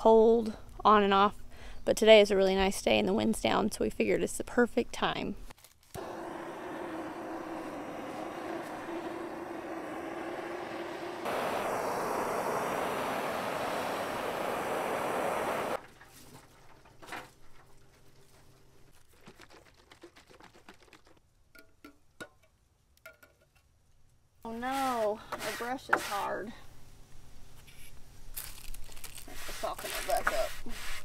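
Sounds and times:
gas torch flame hissing: 0:06.0 - 0:15.8.

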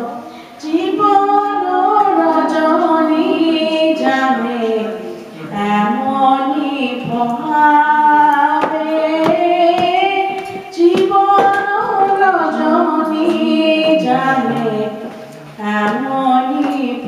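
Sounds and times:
woman singing: 0:00.0 - 0:17.0
sharp rhythmic taps: 0:08.6 - 0:12.2.

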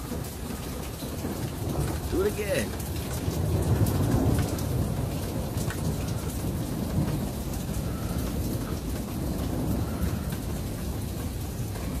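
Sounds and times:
low rumble of thunder: 0:00.0 - 0:12.0
rain pattering: 0:00.0 - 0:12.0.

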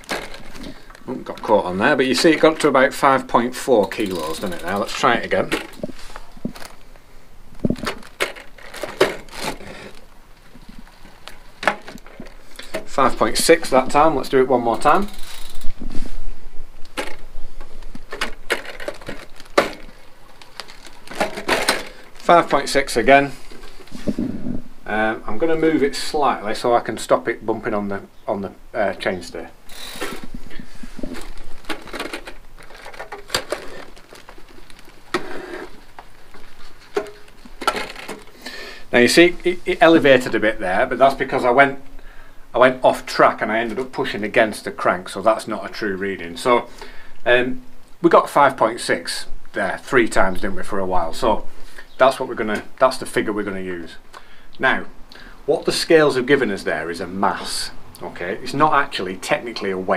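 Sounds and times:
handling clicks and knocks: 0:00.0 - 0:02.8, 0:03.4 - 0:06.9, 0:07.6 - 0:13.3, 0:16.8 - 0:22.5, 0:29.7 - 0:38.5
crinkly rustling: 0:00.0 - 0:24.6, 0:29.7 - 0:41.6.

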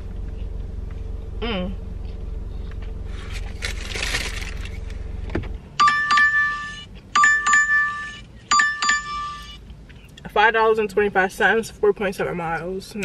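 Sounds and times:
low steady hum: 0:00.0 - 0:13.0
phone double-strike chime: 0:05.8 - 0:09.6.

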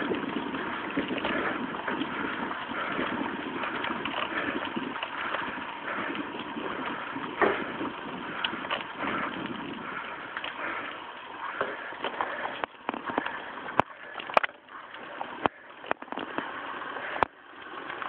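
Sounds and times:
wind noise: 0:00.0 - 0:10.3
bicycle tyres rolling on asphalt: 0:00.0 - 0:18.0.

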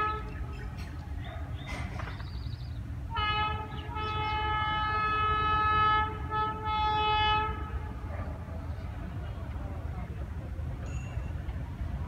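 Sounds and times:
locomotive horn blast: 0:00.0 - 0:00.8, 0:03.1 - 0:08.1.

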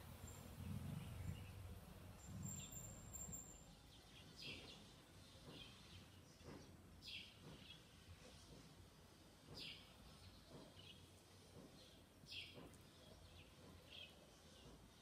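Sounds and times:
low steady rumble: 0:00.0 - 0:03.7.

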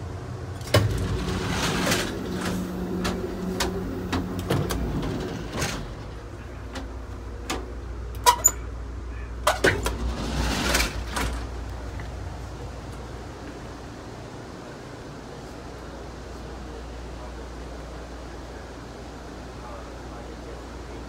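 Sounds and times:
train rumble: 0:00.0 - 0:21.0
sliding door hissing: 0:00.6 - 0:06.4, 0:09.7 - 0:11.6
clanks and rattles: 0:00.6 - 0:08.6, 0:09.4 - 0:12.2.

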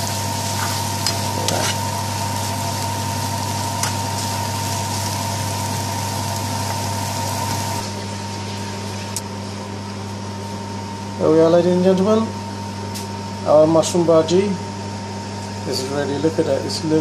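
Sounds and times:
vegetables sizzling in frying pan: 0:00.0 - 0:09.2.

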